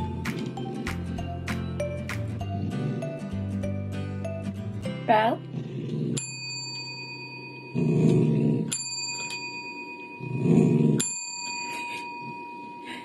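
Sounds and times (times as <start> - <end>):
dog vocalizing: 2.4 - 3.2
desk service bell ding: 6.2 - 7.8, 8.7 - 10.2, 11.0 - 13.0.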